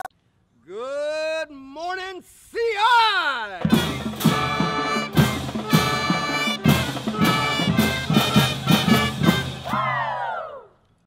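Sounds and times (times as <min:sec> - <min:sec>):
marching band playing: 0:03.6 - 0:10.1.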